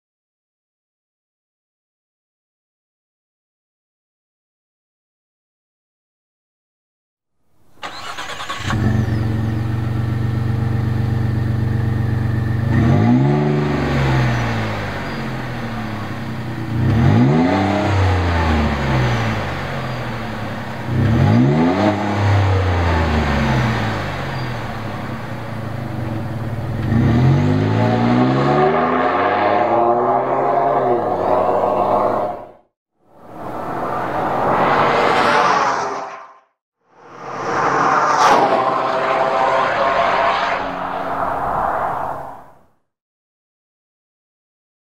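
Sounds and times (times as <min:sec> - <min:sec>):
truck engine starting: 0:07.8 - 0:10.6
truck accelerating away: 0:07.8 - 0:32.3
truck engine idling and revving: 0:07.8 - 0:32.5.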